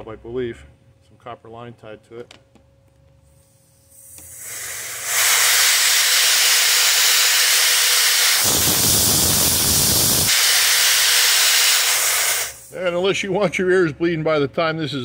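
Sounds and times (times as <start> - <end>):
compressed air hissing: 3.3 - 13.0.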